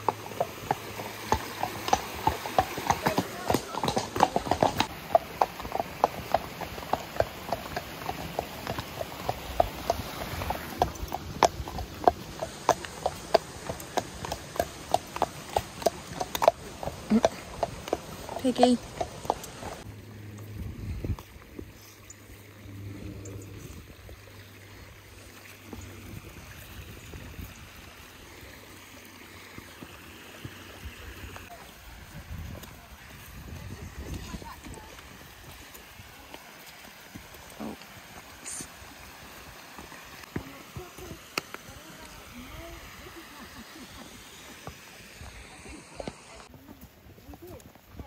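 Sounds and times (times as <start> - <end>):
horse hooves clip-clopping on stones: 0.0 - 21.9, 29.2 - 48.0
wind rumble on microphone: 20.4 - 21.8, 22.7 - 24.3, 25.8 - 27.9, 31.8 - 35.0.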